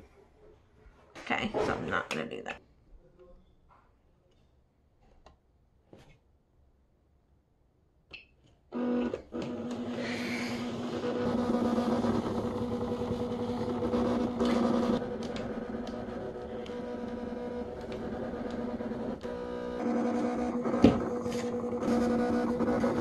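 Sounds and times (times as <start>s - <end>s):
cutting machine motor hum: 8.8s - 23.0s.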